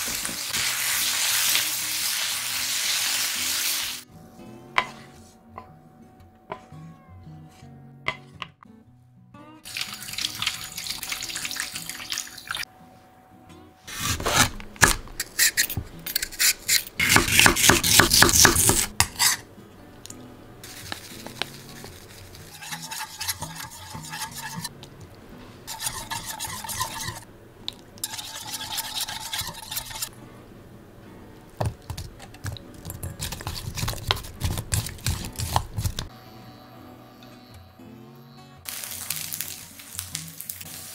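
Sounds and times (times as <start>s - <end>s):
metal bowl being stirred: 20.7s - 24.7s, 25.7s - 27.2s, 28.0s - 30.1s, 31.8s - 36.1s
scraping and rustling at sink: 20.7s - 24.7s, 25.7s - 27.2s.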